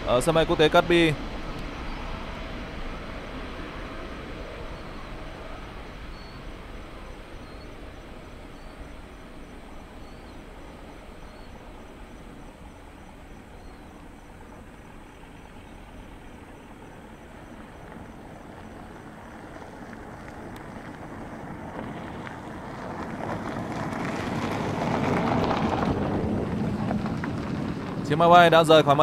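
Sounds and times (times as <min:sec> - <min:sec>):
jet engines rumbling: 0:00.0 - 0:29.0.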